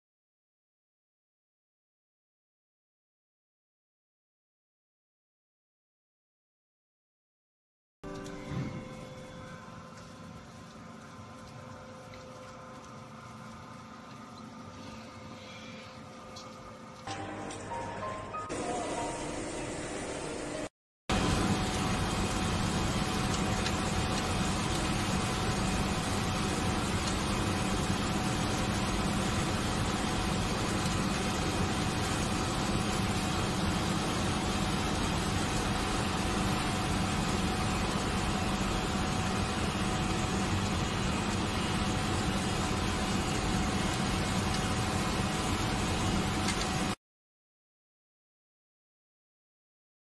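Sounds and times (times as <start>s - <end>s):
composting machine motor humming: 8.0s - 11.8s, 16.4s - 47.0s.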